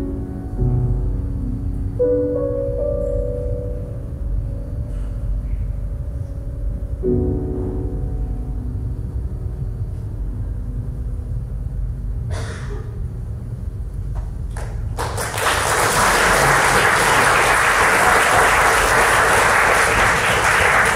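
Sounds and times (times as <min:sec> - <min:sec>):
piano chord: 0:00.0 - 0:12.5
audience applause: 0:14.5 - 0:20.9.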